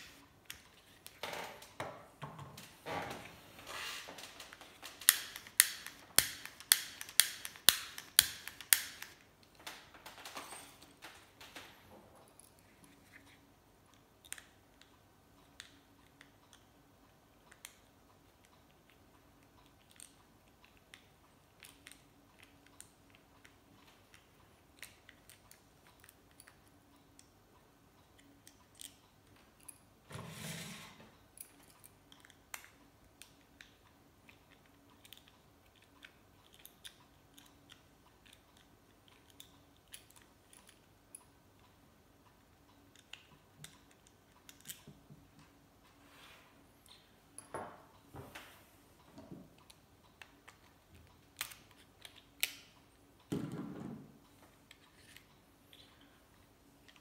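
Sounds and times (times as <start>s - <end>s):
lighter parts clicking: 5.0s - 9.2s.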